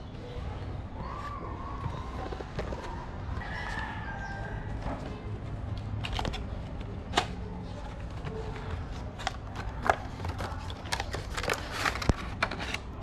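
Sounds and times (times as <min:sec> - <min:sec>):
cardboard and plastic crinkling: 0:05.8 - 0:13.0.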